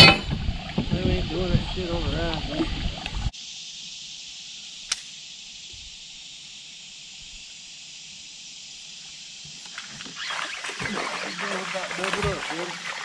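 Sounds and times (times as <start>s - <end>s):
insects droning: 0.0s - 13.0s
sharp click: 4.9s - 5.2s.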